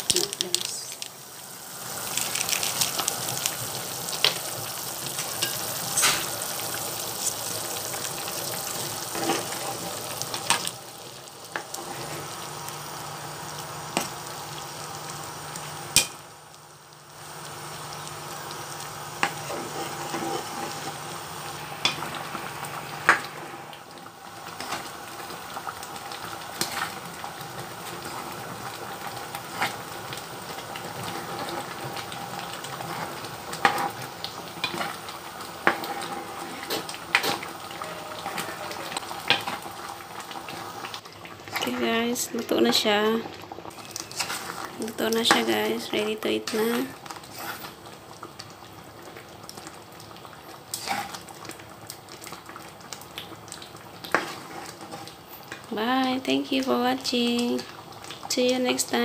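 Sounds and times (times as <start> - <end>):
curry simmering with steady hiss: 0.0 - 59.0
spoon stirring in pot: 43.7 - 45.5.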